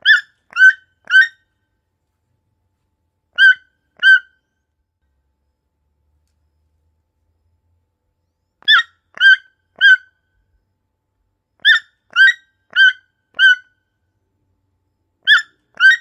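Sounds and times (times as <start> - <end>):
toucan calling: 0.0 - 1.4, 3.4 - 4.4, 8.6 - 10.2, 11.6 - 13.8, 15.2 - 16.0.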